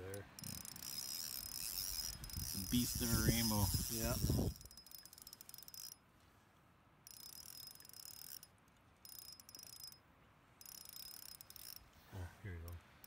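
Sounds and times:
fishing reel ticking: 0.0 - 6.0, 7.1 - 10.0, 10.6 - 11.9.

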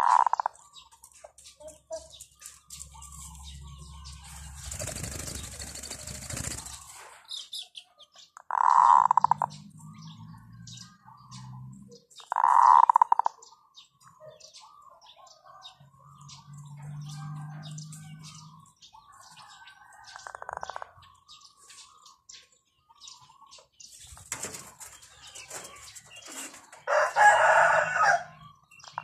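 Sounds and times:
loud trilled bird calls: 0.0 - 15.0, 17.6 - 29.0
small birds chirping: 0.0 - 29.0.

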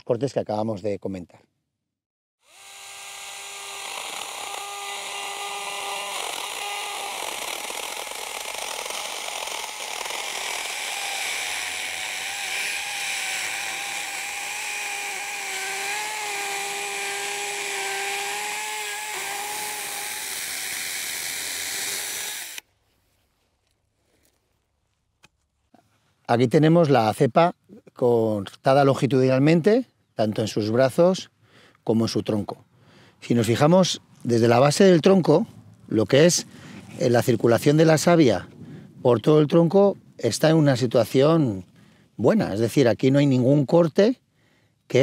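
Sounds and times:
chainsaw cutting wood: 2.4 - 22.6.

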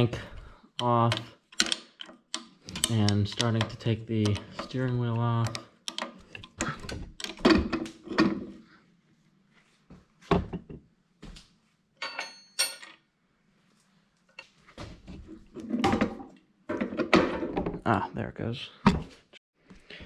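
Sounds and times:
ringing metallic clink: 12.0 - 12.9.

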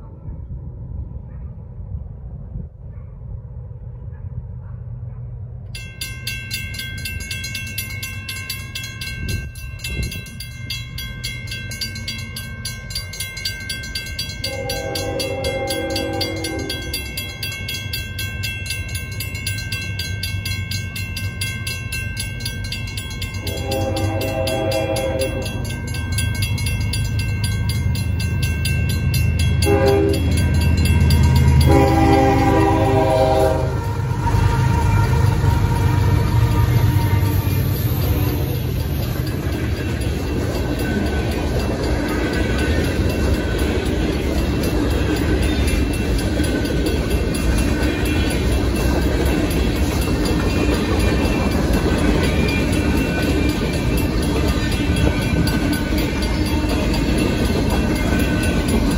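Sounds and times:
diesel locomotive rumble: 0.0 - 58.9
railroad crossing bells ringing: 5.5 - 58.9
locomotive horn: 14.4 - 17.0, 23.4 - 25.7, 29.6 - 38.5.

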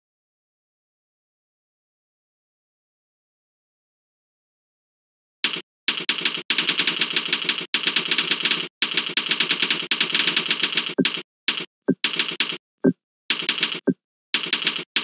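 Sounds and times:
fast typing on keyboard: 5.4 - 12.6, 13.3 - 15.0.

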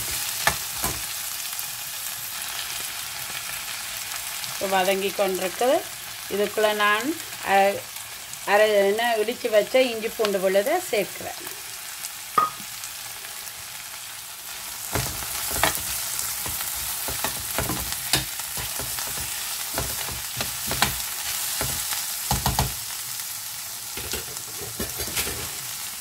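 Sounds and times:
food sizzling in a pot: 0.0 - 26.0.

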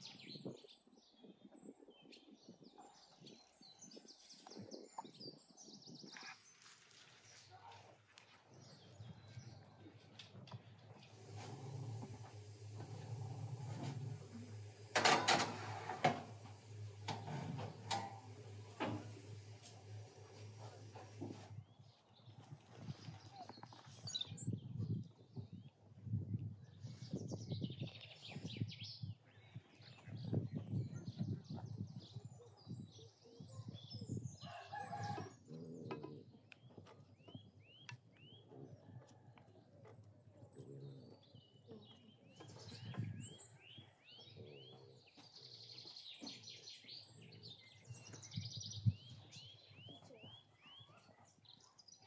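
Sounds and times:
steady low hum: 8.9 - 23.5
oven door clattering open: 11.1 - 21.3
oven door shutting: 11.1 - 21.6
baking tray clicking onto rack: 13.8 - 19.8
small birds chirping: 17.8 - 25.8, 26.7 - 39.0, 40.4 - 52.0
rooster crowing: 34.4 - 35.3.

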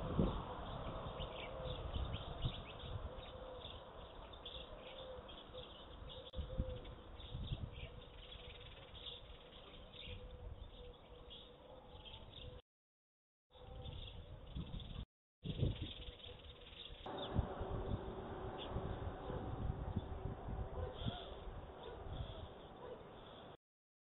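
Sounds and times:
songbirds chirping: 0.0 - 12.6, 13.5 - 23.6
low rumble: 17.1 - 22.4
faint steady hum: 17.1 - 22.9.

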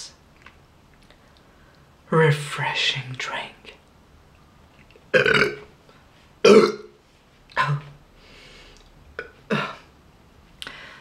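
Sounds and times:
loud burps: 5.1 - 5.7, 6.4 - 7.0.

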